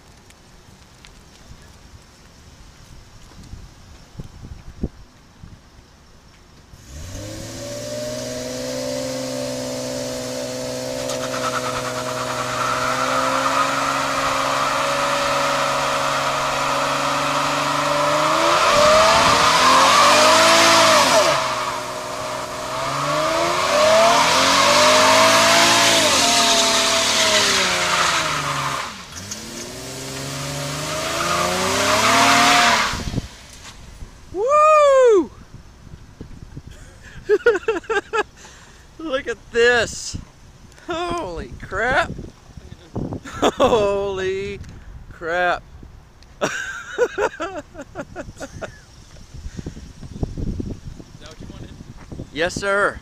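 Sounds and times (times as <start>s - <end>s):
car engine revving: 6.8s - 33.7s
tyres squealing: 10.8s - 33.0s.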